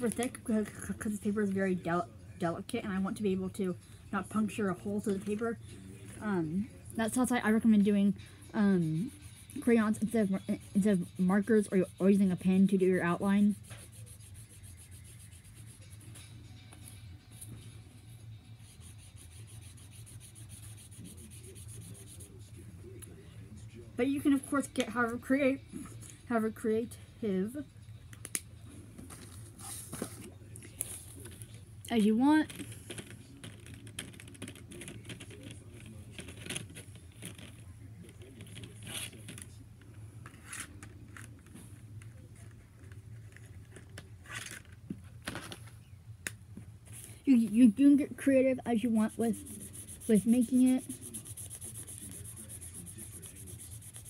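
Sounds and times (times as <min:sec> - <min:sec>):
steady low hum: 0:00.0 - 0:54.0
pen scribbling on paper: 0:08.6 - 0:16.1, 0:18.6 - 0:22.4, 0:47.8 - 0:54.0
paper scratching and rustling: 0:08.6 - 0:22.7, 0:29.0 - 0:31.6, 0:32.4 - 0:39.6, 0:40.2 - 0:45.6, 0:48.3 - 0:54.0.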